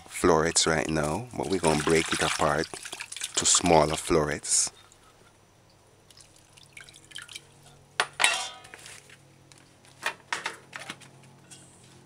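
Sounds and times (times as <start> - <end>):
water splashing in a metal bowl: 0.5 - 4.2, 6.1 - 7.6.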